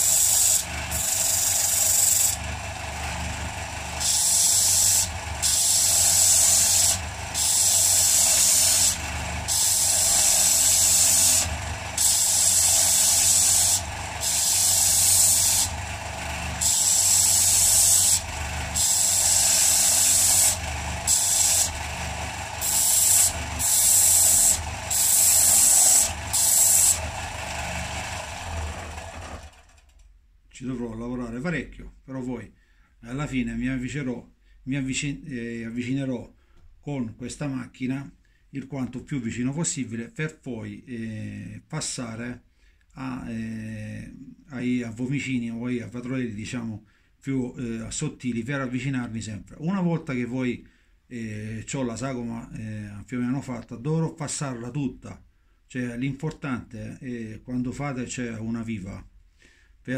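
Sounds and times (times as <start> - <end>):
wood rasping on sander: 0.0 - 29.5
disc sander running: 0.0 - 29.9.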